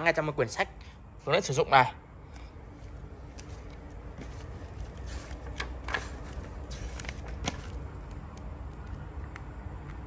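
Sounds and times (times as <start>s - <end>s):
paper pages rustling: 2.8s - 9.0s.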